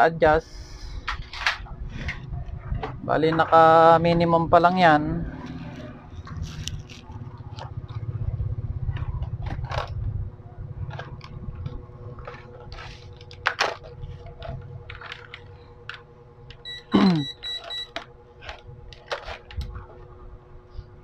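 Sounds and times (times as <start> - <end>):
low rumble: 0.4 - 16.4.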